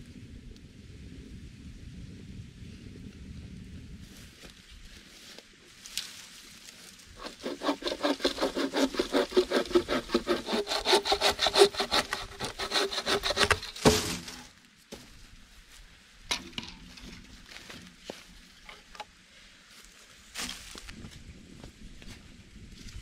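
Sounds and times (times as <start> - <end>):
hand saw cutting wood: 7.2 - 14.5.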